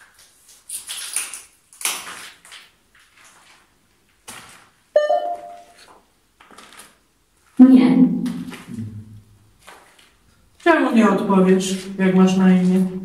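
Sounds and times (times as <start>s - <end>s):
bright ringing ping: 5.0s - 5.8s.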